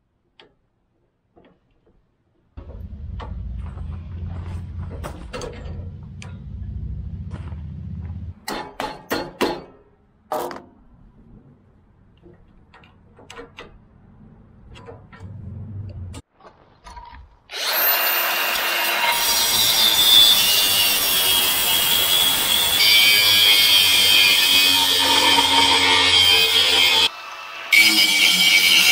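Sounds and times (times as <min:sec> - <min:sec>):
angle grinder cutting metal: 0:17.5 - 0:28.9.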